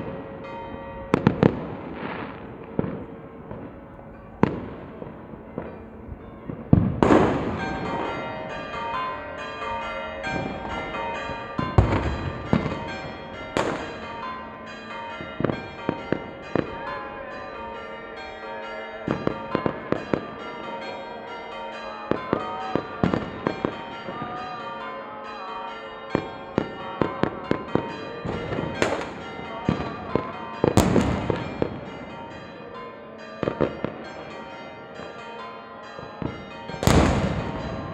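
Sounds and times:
church bells ringing: 0:00.0 - 0:37.9
fireworks and firecrackers banging: 0:01.1 - 0:03.8, 0:04.4 - 0:05.8, 0:06.5 - 0:08.3, 0:11.6 - 0:14.2, 0:22.1 - 0:24.4, 0:26.1 - 0:32.4, 0:36.0 - 0:37.9.

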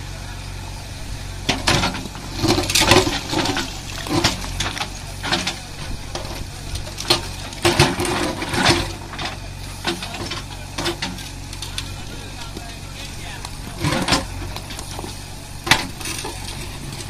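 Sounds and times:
diesel engine running: 0:00.0 - 0:17.0
bucket scraping through stones: 0:01.6 - 0:11.3, 0:13.6 - 0:17.0.

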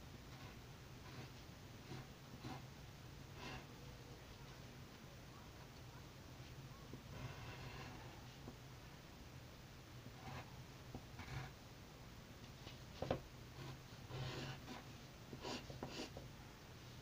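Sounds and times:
pencil scratching on paper: 0:00.3 - 0:02.7, 0:03.3 - 0:03.7, 0:07.0 - 0:08.2, 0:10.2 - 0:10.5, 0:11.2 - 0:11.6, 0:13.0 - 0:16.2.

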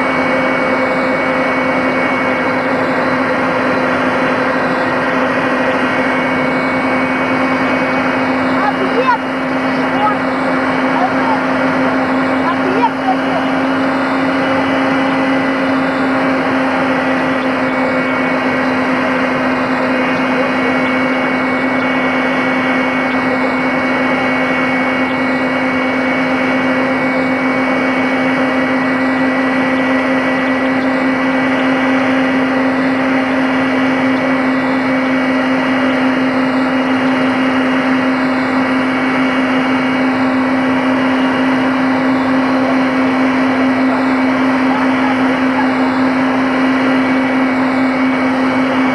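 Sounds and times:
helicopter drone from inside: 0:00.0 - 0:48.9.

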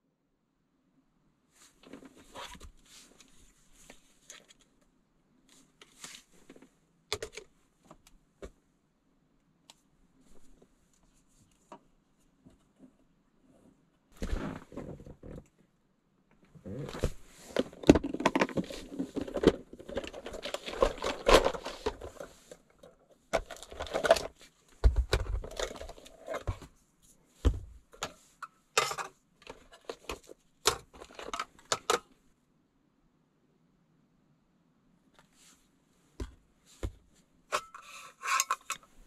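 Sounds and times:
rustling: 0:05.4 - 0:06.8, 0:16.5 - 0:32.2.

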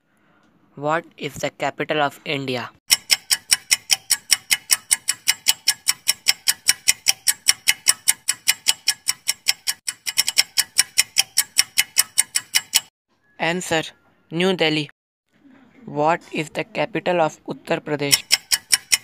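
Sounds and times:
rapid clock ticks: 0:02.9 - 0:12.9, 0:18.0 - 0:19.0.

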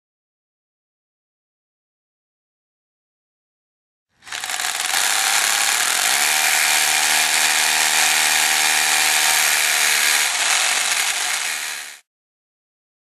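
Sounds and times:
power drill boring into concrete: 0:04.2 - 0:12.1.

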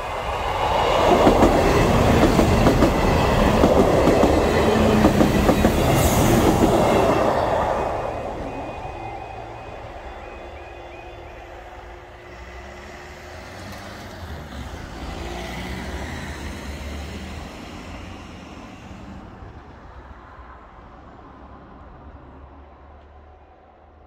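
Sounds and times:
car driving past: 0:01.0 - 0:19.4.

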